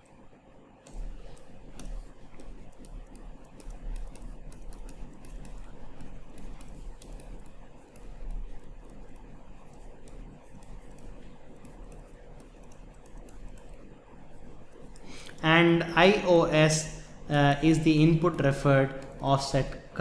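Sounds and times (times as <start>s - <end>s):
stylus tapping on tablet screen: 0.8s - 15.3s.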